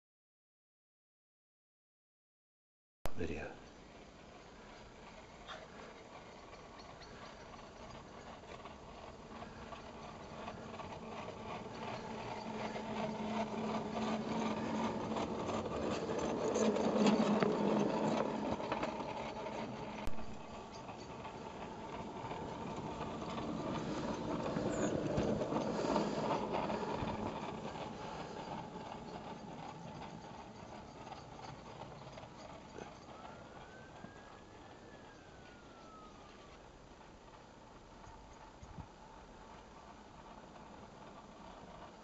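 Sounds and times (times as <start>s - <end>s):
wheels on rails: 3.3s - 42.0s
electric motor hum: 7.7s - 36.6s.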